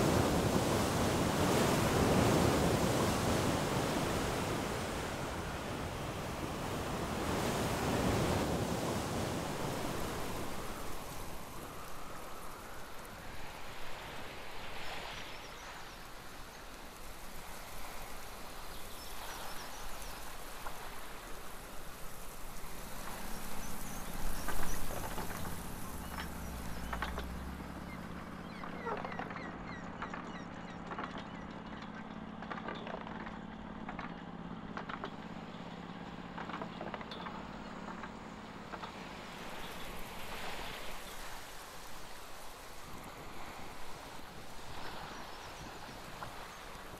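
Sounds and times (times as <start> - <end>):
waves washing: 0.0 - 29.5, 33.7 - 46.9
motorboat engine drone: 0.0 - 46.9
wind: 0.0 - 46.9.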